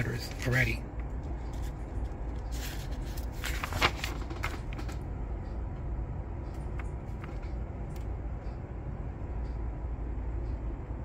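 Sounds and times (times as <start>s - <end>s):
steady low hum: 0.0s - 11.0s
paper pages rustling: 1.4s - 5.0s
sharp paper crinkle: 2.6s - 4.9s.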